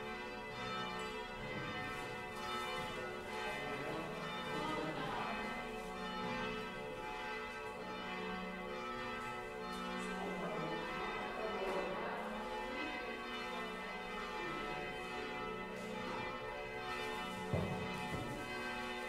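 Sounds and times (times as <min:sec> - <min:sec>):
church bells pealing: 0:00.0 - 0:19.0.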